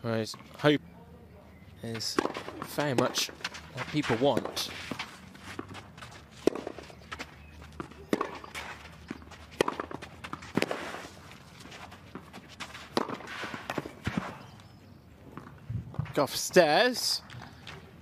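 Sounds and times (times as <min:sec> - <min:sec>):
footsteps on clay: 0:01.9 - 0:14.7
racket striking tennis ball: 0:02.0 - 0:07.0, 0:07.7 - 0:14.6.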